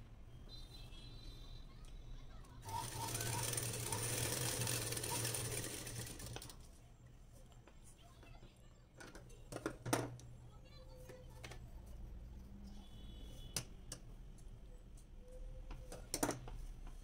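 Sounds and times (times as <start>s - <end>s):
sewing machine stitching: 2.6s - 6.6s.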